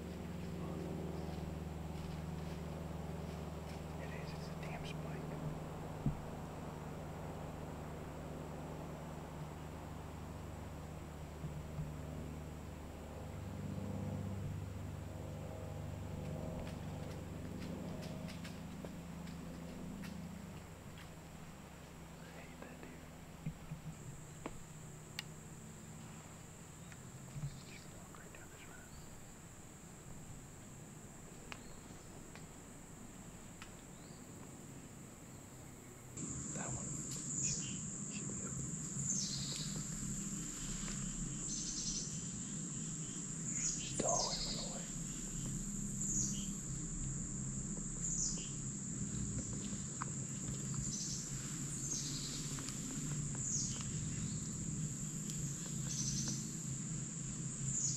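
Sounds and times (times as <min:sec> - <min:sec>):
insects buzzing: 0:00.0 - 0:57.9
bird chirping: 0:26.8 - 0:29.4, 0:31.4 - 0:32.2, 0:33.9 - 0:34.4, 0:35.2 - 0:47.0, 0:47.8 - 0:56.7, 0:57.3 - 0:57.9.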